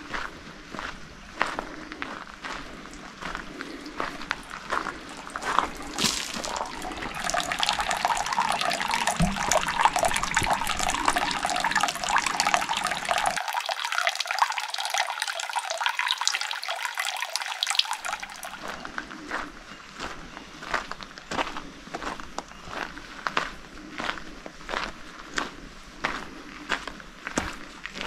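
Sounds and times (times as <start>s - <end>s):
running water splashing and gurgling: 3.4s - 18.7s.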